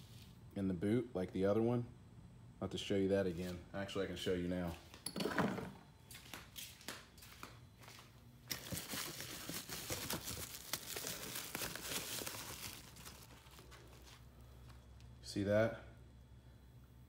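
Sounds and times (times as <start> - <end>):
plastic wrapping crinkling: 7.9 - 15.1.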